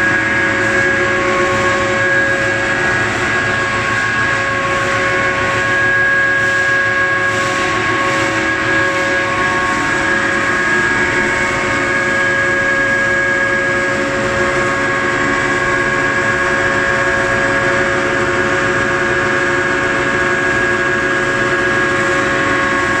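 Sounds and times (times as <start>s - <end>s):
pellet mill mechanical hum: 0.0s - 23.0s.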